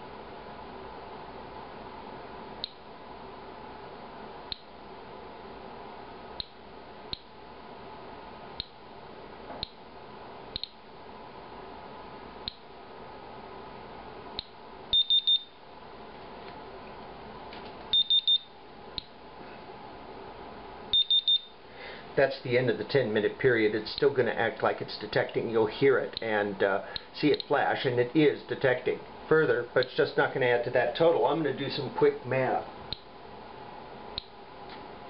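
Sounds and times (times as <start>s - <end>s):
geiger counter chirping: 21.0s - 21.6s.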